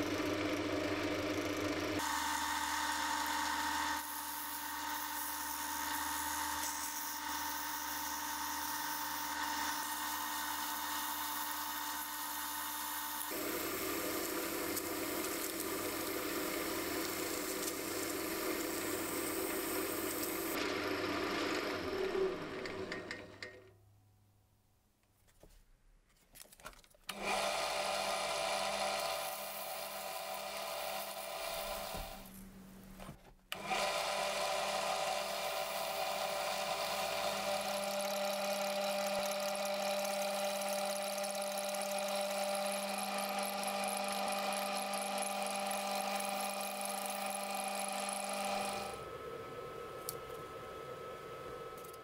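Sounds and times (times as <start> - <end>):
lathe motor whine: 0.0 - 23.2, 27.1 - 32.3, 33.6 - 52.0
sandpaper sanding spinning metal: 4.0 - 12.3, 13.2 - 20.6.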